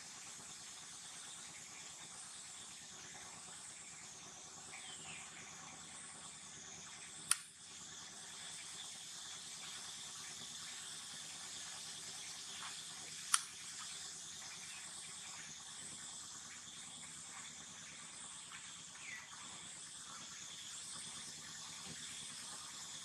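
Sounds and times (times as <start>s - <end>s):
steady outdoor hiss: 0.0s - 23.0s
sharp clicks: 7.2s - 7.5s, 13.3s - 13.6s.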